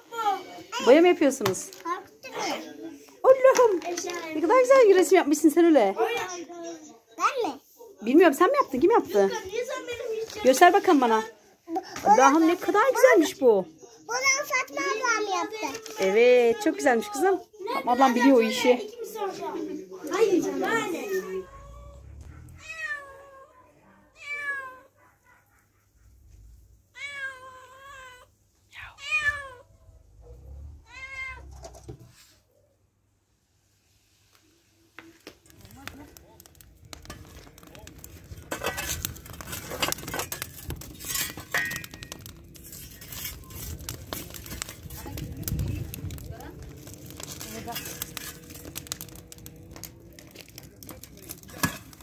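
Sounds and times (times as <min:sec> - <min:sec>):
cat meowing: 0:21.1 - 0:25.0, 0:26.9 - 0:29.7, 0:30.8 - 0:31.7
dishes and glassware clattering: 0:38.5 - 0:42.2.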